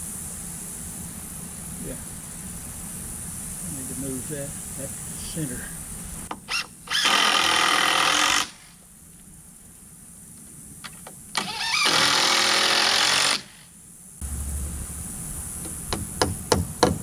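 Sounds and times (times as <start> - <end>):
cordless drill running: 6.4 - 8.7, 11.4 - 13.6.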